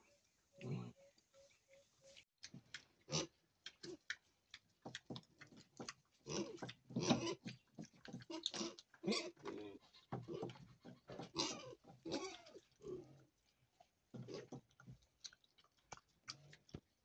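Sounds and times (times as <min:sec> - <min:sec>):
piglets grunting and squealing: 0:00.6 - 0:01.0, 0:03.0 - 0:04.1, 0:06.2 - 0:13.3.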